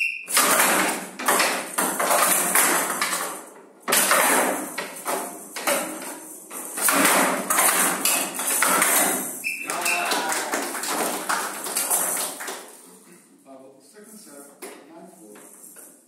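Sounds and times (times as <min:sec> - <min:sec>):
bat hitting rattling ball: 0:00.3 - 0:09.5
pellet ball rattling: 0:00.3 - 0:12.8.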